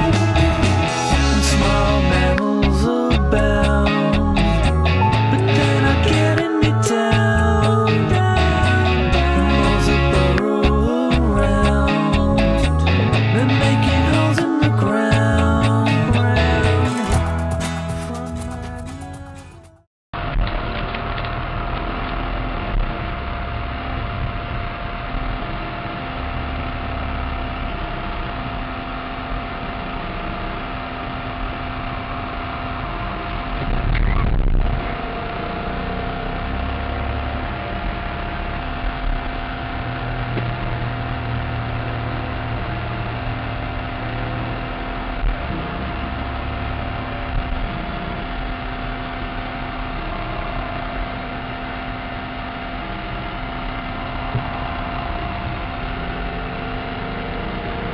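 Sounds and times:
air conditioning blower whine: 34.4s - 57.9s.

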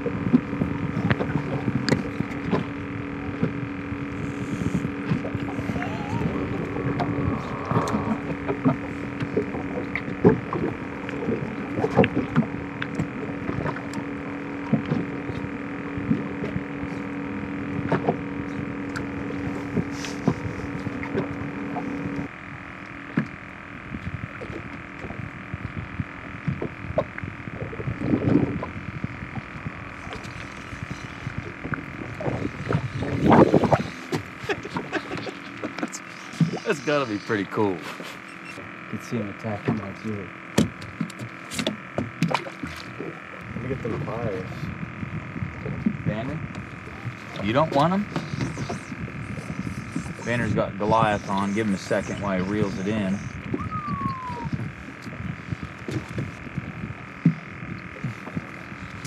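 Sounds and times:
low bursts: 0.0s - 24.4s
muffled underwater hum: 0.0s - 59.0s.

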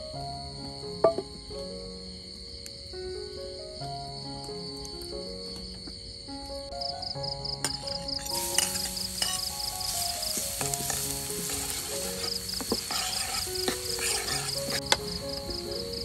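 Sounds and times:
ladle knocking against pan: 1.0s - 1.3s
garlic sizzling in oil: 7.7s - 16.0s.

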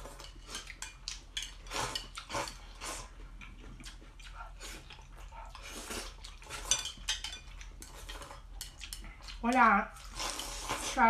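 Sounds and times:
person slurping noodles: 10.1s - 11.0s.

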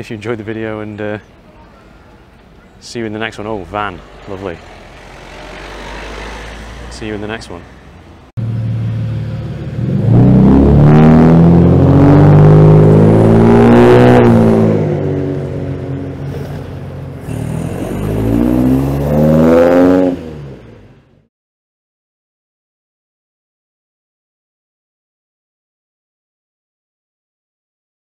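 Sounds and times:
car engines accelerating: 3.4s - 21.3s.

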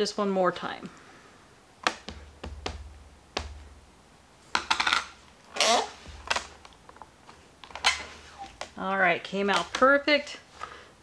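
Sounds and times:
light taps: 1.8s - 3.8s.

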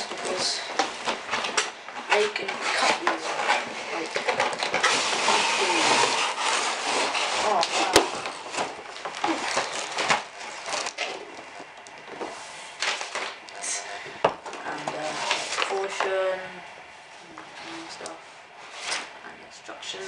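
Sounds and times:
cardboard scraping and rustling: 0.0s - 11.6s.

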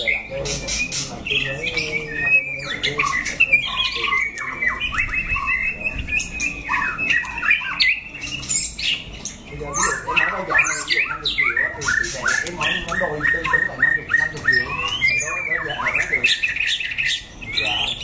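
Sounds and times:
songbirds singing and calling: 0.0s - 18.0s.

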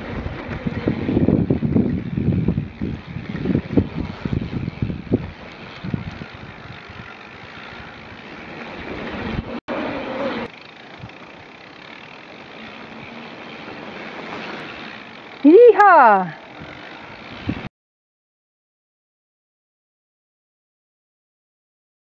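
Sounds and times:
wind rushing on microphone: 0.0s - 9.6s, 16.6s - 17.7s
bike tyre and trail noise: 0.0s - 17.7s.

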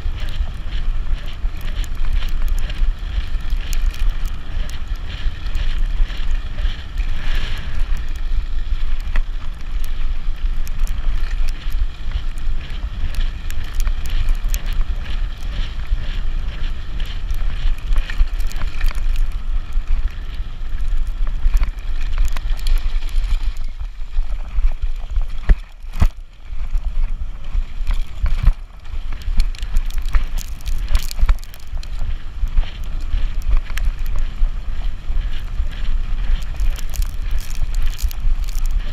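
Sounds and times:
wind buffeting microphone: 0.0s - 38.9s
bike rattling and knocking: 36.3s - 38.9s.

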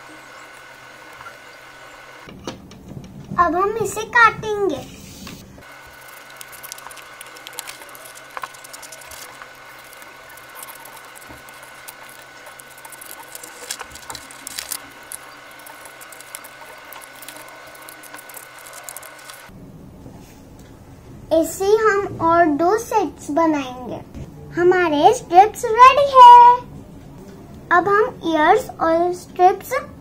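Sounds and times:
paper rustling: 5.2s - 19.5s
scissors snipping paper: 5.6s - 19.5s.

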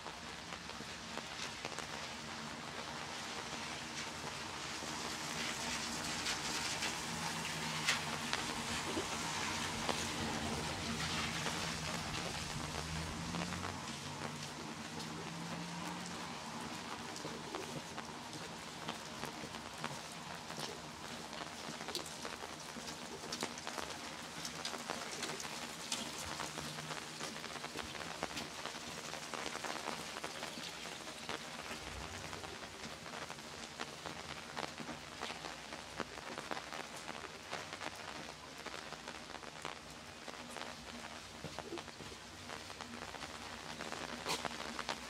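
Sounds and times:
steady rain on a street: 0.0s - 45.0s
raindrops ticking: 0.1s - 45.0s.

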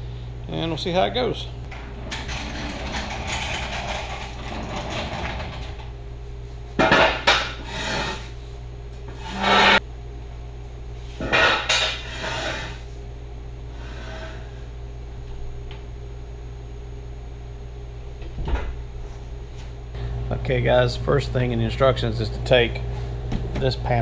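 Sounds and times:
metal scraping: 6.8s - 8.4s, 9.1s - 9.8s, 11.2s - 12.8s.

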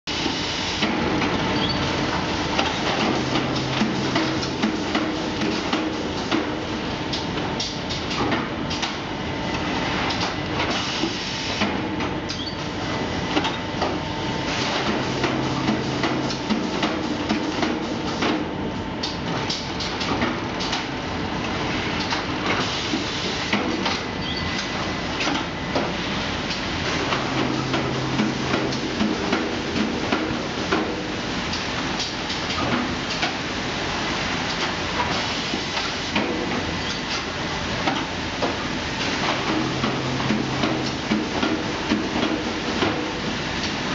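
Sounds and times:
machine hum: 0.2s - 10.5s, 11.8s - 19.5s, 24.2s - 32.4s, 36.3s - 43.9s
low hum: 27.0s - 30.1s.

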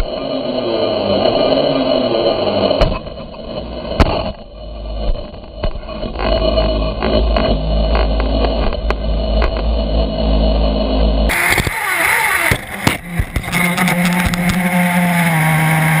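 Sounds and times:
model car engine idling: 10.4s - 16.0s
sharp clicks: 11.3s - 14.6s.

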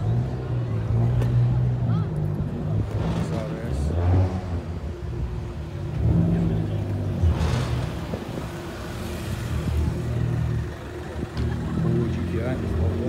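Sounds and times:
car engine idling: 7.8s - 13.0s.

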